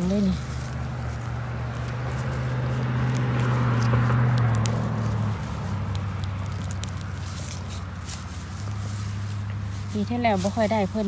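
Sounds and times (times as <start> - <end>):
low engine hum: 0.0 - 11.0
light clicks: 3.1 - 4.8.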